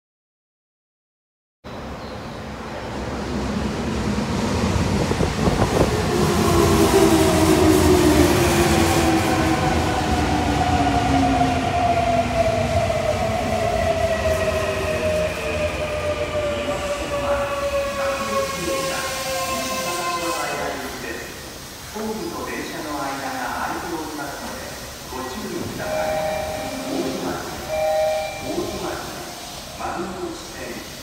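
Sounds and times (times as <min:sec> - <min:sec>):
train wheels rumbling: 0:02.7 - 0:21.2.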